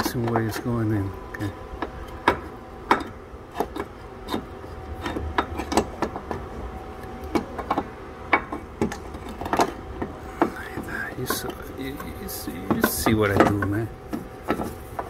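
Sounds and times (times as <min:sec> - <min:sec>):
metal housing knocking and scraping: 0:07.3 - 0:15.0.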